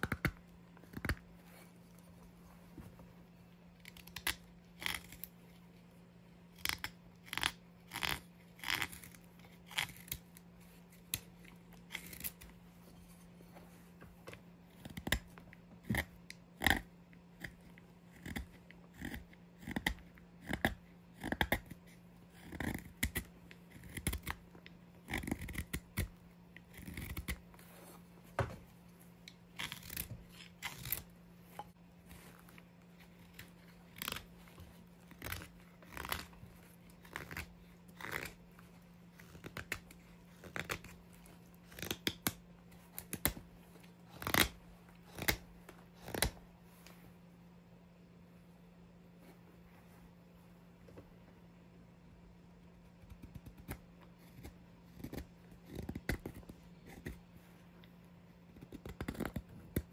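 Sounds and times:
knife carving wood shavings: 0:00.0 - 0:02.0, 0:03.7 - 0:05.6, 0:06.5 - 0:13.5, 0:14.6 - 0:28.5, 0:29.2 - 0:46.4, 0:53.1 - 0:57.3, 0:58.4 - 0:59.9.

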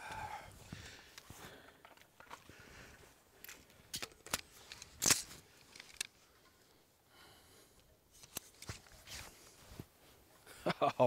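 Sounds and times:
gun handling clicks: 0:03.4 - 0:06.2.

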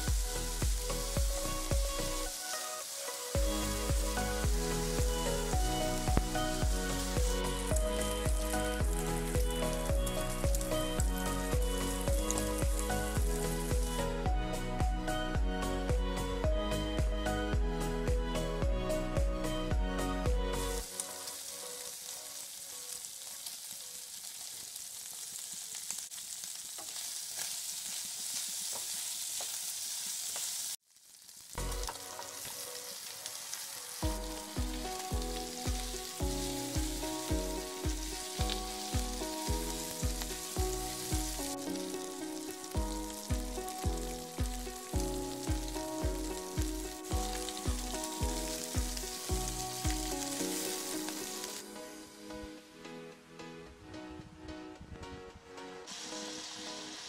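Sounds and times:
electronic music with steady beat: 0:00.0 - 0:02.6, 0:03.4 - 0:20.8, 0:34.0 - 0:56.8
food sizzling in a frying pan: 0:00.0 - 0:14.2, 0:20.6 - 0:52.3, 0:55.8 - 0:57.0.

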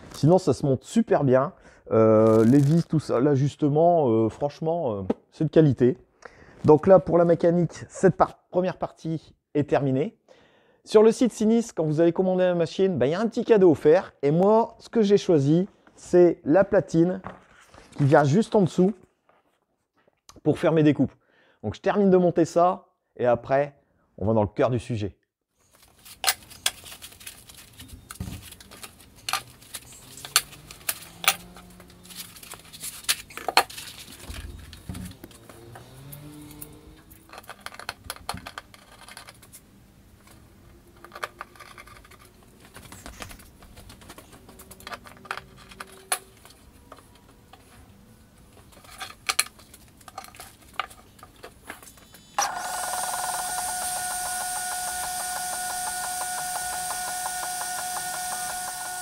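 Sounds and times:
laser engraver whining: 0:52.3 - 0:59.0.

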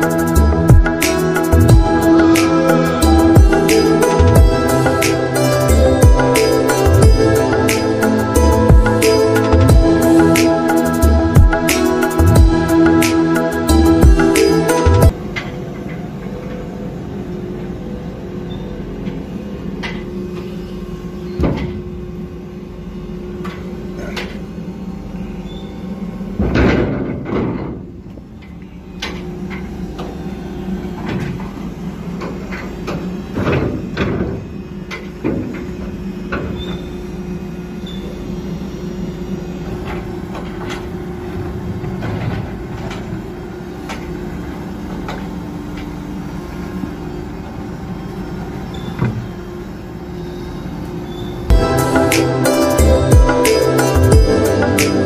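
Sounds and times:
crane machinery drone: 0:00.0 - 0:55.0
metal clanks and knocks: 0:26.4 - 0:28.2.

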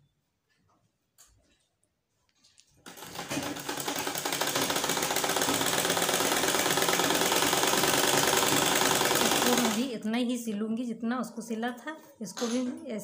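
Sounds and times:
sewing machine clattering: 0:02.8 - 0:09.9.

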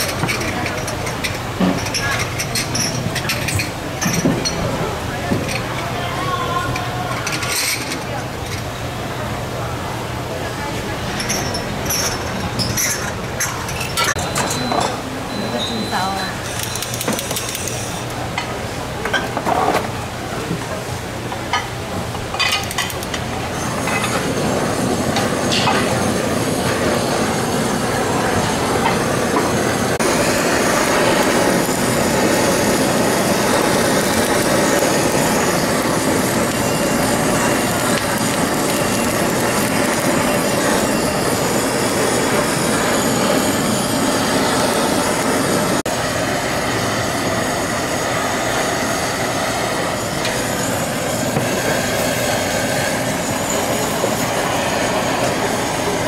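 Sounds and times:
meat sizzling on a griddle: 0:30.0 - 0:56.0.

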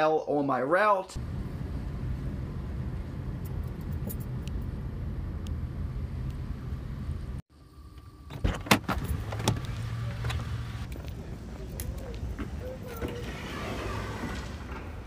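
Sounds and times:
low hum inside car: 0:01.2 - 0:13.0.

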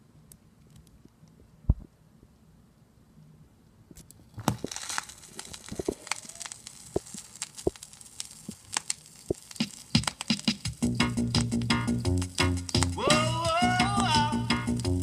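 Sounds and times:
vinyl surface hiss with clicks: 0:03.0 - 0:15.0.

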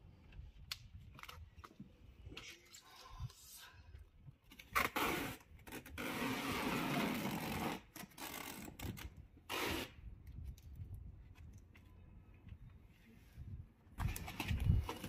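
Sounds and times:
tape pulled off roll: 0:04.5 - 0:10.0.

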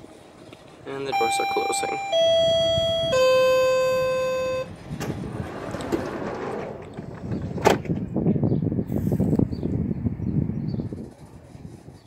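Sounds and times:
door-closing chime: 0:01.1 - 0:04.7
doors sliding shut with knocks: 0:05.0 - 0:08.1.

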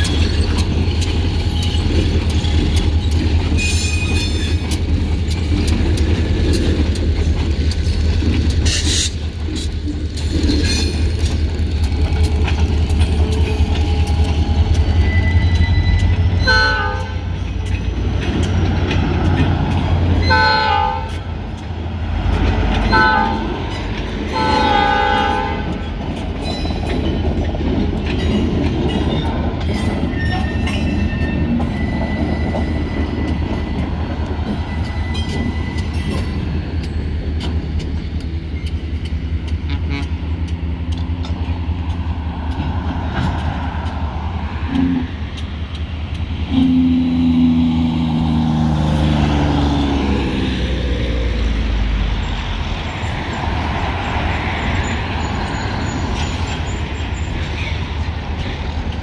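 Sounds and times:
freight train rumbling: 0:00.0 - 0:59.0
wheels and couplings clanking: 0:00.0 - 0:59.0
train horn blast: 0:16.4 - 0:17.2, 0:20.2 - 0:21.3, 0:22.9 - 0:23.6, 0:24.3 - 0:25.8, 0:39.6 - 0:40.4, 0:46.5 - 0:47.6.

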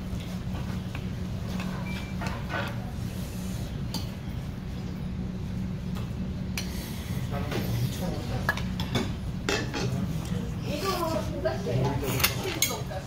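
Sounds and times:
low background hum: 0:00.0 - 0:13.0
metal spoons scraping bowls: 0:10.9 - 0:13.0.

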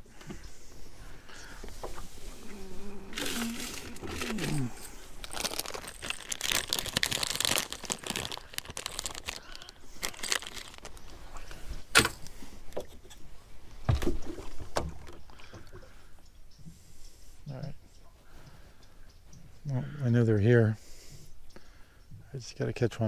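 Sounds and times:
plastic packaging crinkling: 0:03.1 - 0:11.1.

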